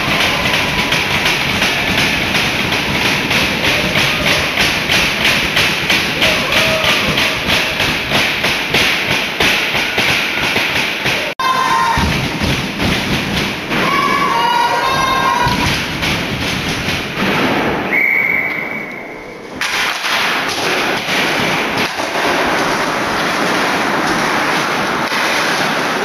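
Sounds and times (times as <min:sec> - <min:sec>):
spectators pounding a beat: 0:00.0 - 0:17.9
crowd noise: 0:00.0 - 0:26.0.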